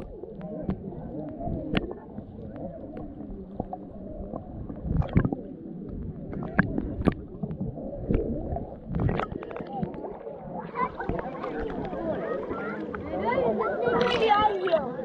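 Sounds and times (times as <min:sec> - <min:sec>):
underwater clicks and knocks: 0:00.0 - 0:10.3, 0:10.9 - 0:12.1
underwater sloshing rumble: 0:00.0 - 0:15.0.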